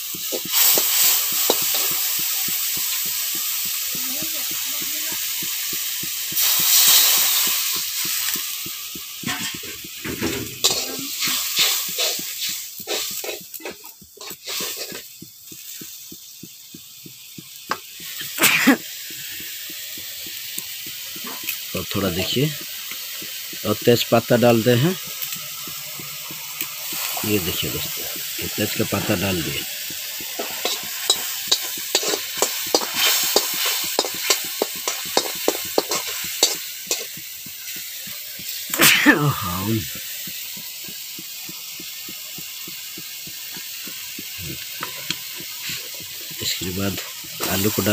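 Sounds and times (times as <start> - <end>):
spice paste sizzling: 0.0 - 47.9
metal spatula scraping a pan: 9.2 - 15.1, 30.2 - 37.2.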